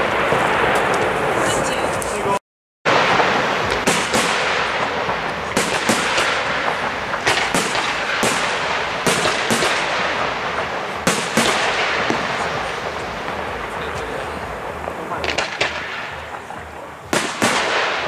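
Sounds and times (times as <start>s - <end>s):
firework bangs: 0.0s - 18.0s
steady wash of noise: 0.0s - 18.0s.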